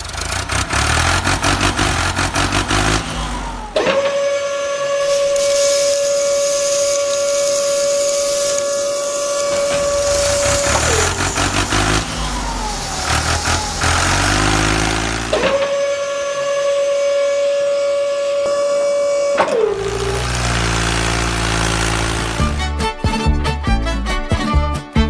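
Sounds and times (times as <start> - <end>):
small electric motor whining: 5.0 - 15.7, 19.6 - 22.6.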